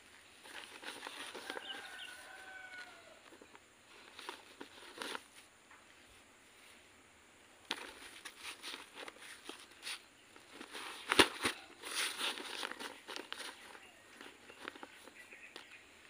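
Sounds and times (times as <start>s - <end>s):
potting medium rustling in plastic bags: 0.0s - 5.5s, 7.6s - 15.8s
faint drawn-out animal call: 1.4s - 3.4s.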